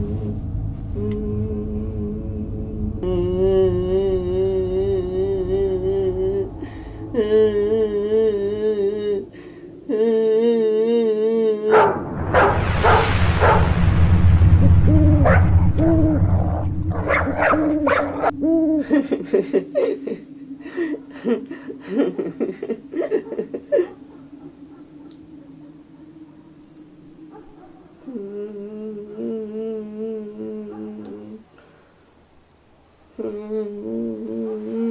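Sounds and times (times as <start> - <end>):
deep rumbling: 0.0 - 9.9, 11.6 - 19.3
low hum: 0.0 - 10.6, 11.2 - 20.6
high insect chirp: 0.0 - 34.9.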